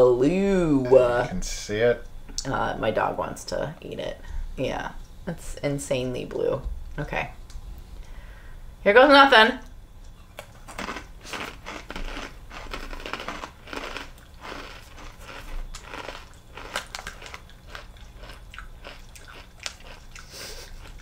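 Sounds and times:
chips being crunched and chewed: 10.4s - 21.0s.

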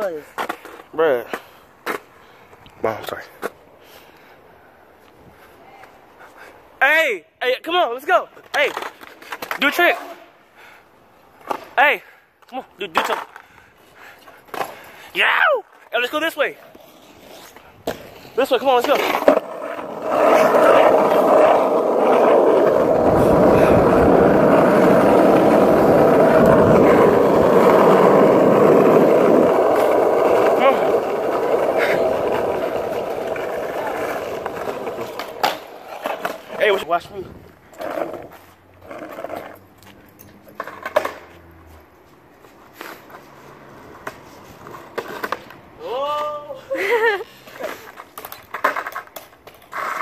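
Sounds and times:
skateboard rolling on asphalt: 12.9s - 50.0s.

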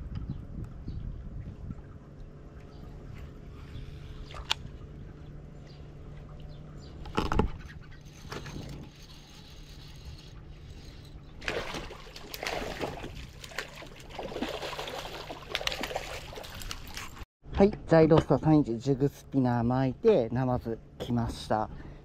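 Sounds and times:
fish splashing at water surface: 11.4s - 17.2s.

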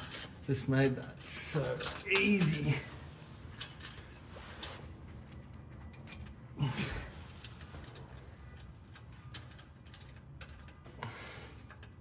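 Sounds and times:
metallic clicks of exhaust clamp: 7.3s - 12.0s.

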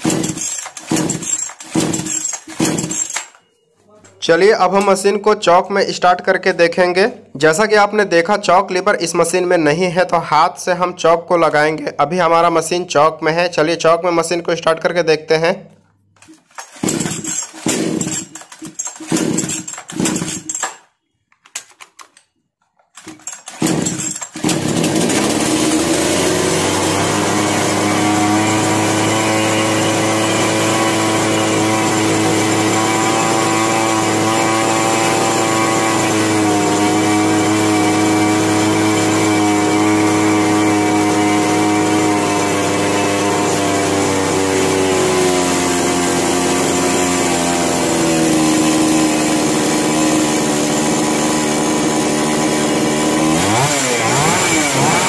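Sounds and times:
chainsaw engine running: 0.0s - 3.4s, 16.2s - 20.8s, 23.0s - 55.0s.

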